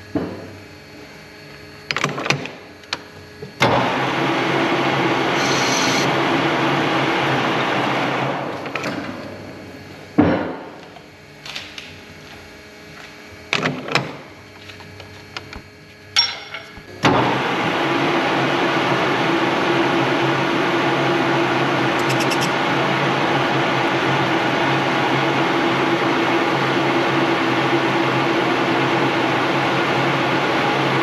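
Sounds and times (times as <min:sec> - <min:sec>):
metal-working machine running: 0:03.7 - 0:06.5, 0:21.9 - 0:22.7
metal knocks and clinks: 0:16.2 - 0:16.9.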